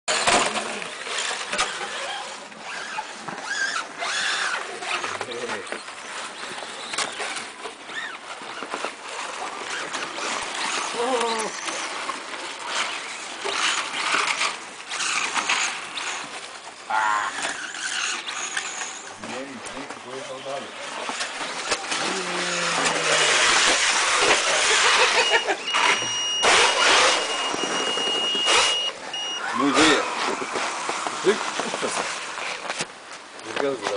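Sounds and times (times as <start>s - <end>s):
rc car motors whining: 0.1s - 32.9s
high-pitched motor whine: 17.3s - 31.7s.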